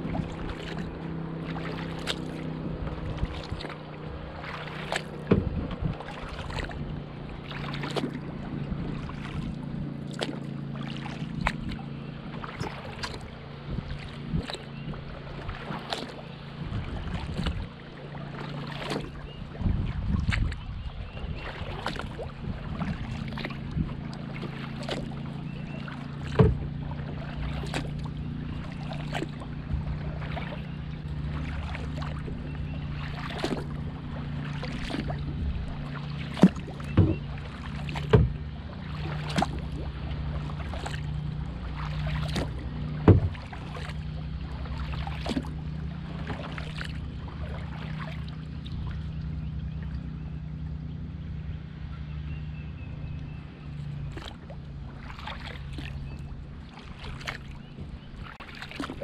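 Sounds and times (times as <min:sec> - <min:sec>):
paddle strokes in calm water: 0:00.0 - 0:59.0
steady low hum: 0:00.0 - 0:59.0
sharp paddle knocks: 0:04.9 - 0:05.8, 0:26.2 - 0:26.7, 0:36.3 - 0:38.4, 0:42.2 - 0:43.9.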